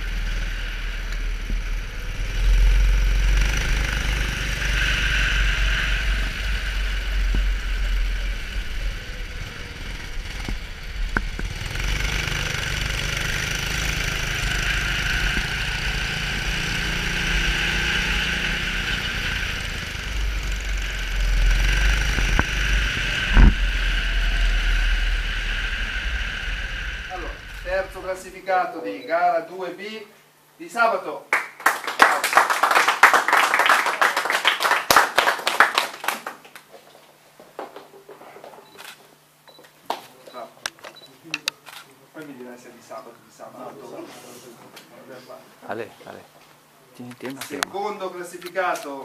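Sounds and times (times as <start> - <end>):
kart engine running hard: 0.0 - 28.1.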